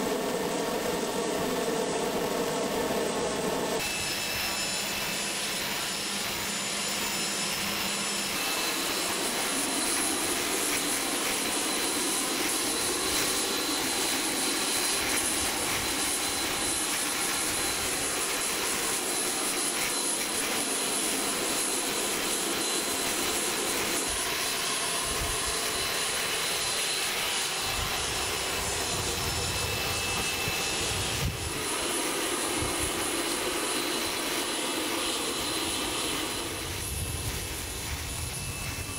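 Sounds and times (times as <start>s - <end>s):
jet turbine rush and whine: 0.0s - 38.9s
wind rumble on microphone: 27.7s - 31.6s, 36.6s - 38.9s.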